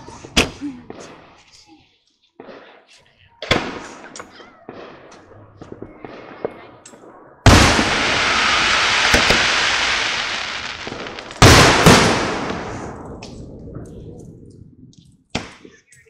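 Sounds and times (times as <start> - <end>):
loud firework bursts: 7.5 - 13.3.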